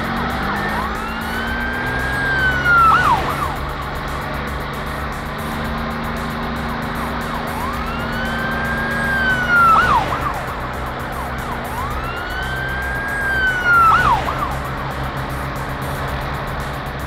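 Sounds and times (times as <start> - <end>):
cartoon police siren wail: 0.0 - 4.1, 6.3 - 15.5
steady low drone: 0.0 - 17.0.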